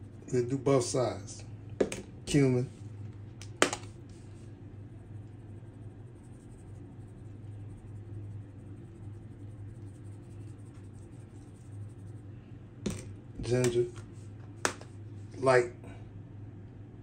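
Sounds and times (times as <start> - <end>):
steady low hum: 0.0 - 17.0
spice shaker rustling: 2.7 - 12.3.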